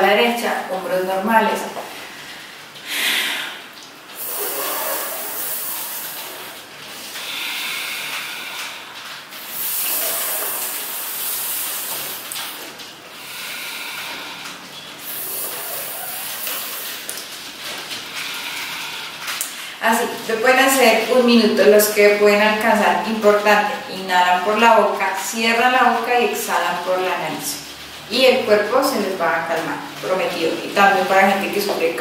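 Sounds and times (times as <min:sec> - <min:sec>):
hissing in-breaths: 0:01.9 - 0:17.1, 0:17.9 - 0:19.8
out-breaths through nose: 0:02.0 - 0:17.0, 0:17.9 - 0:19.8.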